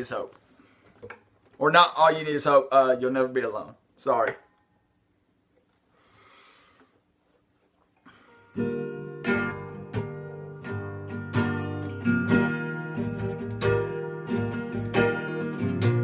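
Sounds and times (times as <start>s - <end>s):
acoustic guitar strumming chords: 8.4s - 16.0s.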